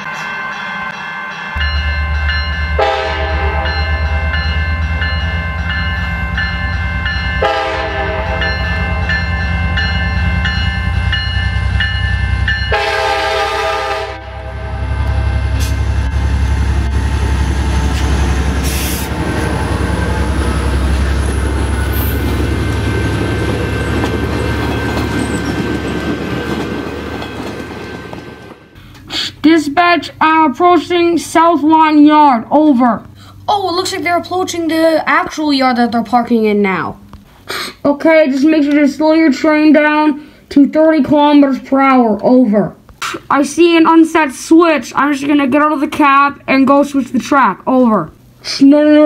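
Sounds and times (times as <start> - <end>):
moving train rumbling: 0.0 - 37.5
train horn blasts: 2.8 - 4.5, 7.4 - 9.3, 12.6 - 20.7.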